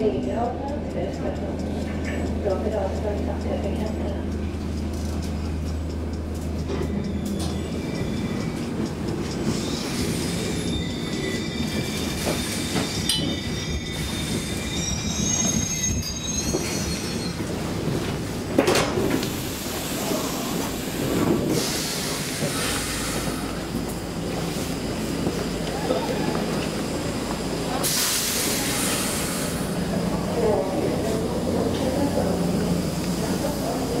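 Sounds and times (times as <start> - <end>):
metro train running: 0.0 - 34.0
steel wheels squealing: 4.9 - 17.9, 19.9 - 30.4.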